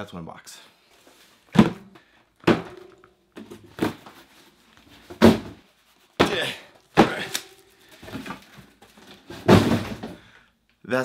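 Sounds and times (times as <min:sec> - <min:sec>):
cardboard cases thudding on desk: 0:01.5 - 0:04.2, 0:05.1 - 0:05.6, 0:08.0 - 0:10.2.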